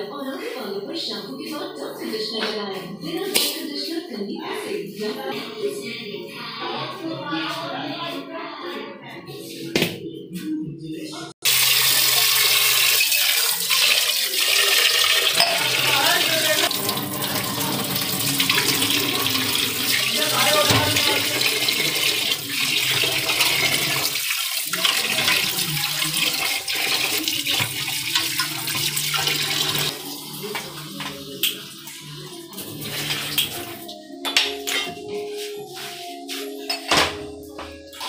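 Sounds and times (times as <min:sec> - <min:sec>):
tap water running into a pot: 0:11.4 - 0:33.8.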